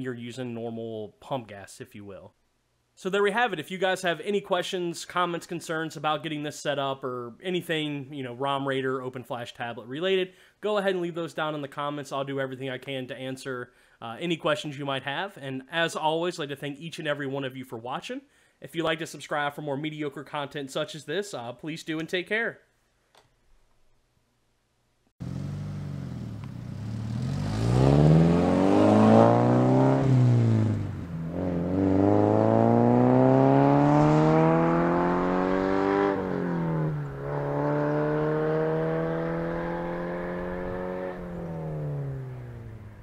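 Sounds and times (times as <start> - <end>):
car engine accelerating: 25.2 - 43.0.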